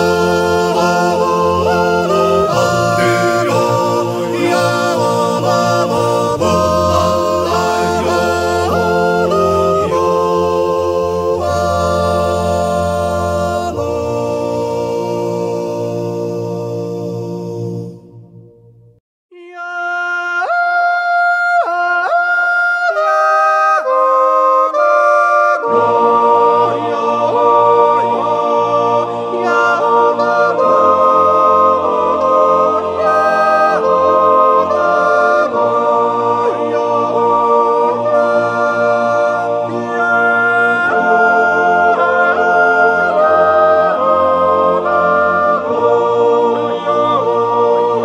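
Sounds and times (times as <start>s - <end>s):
person yodeling: 0.0s - 17.9s
instrumental accompaniment with bass: 0.0s - 19.0s.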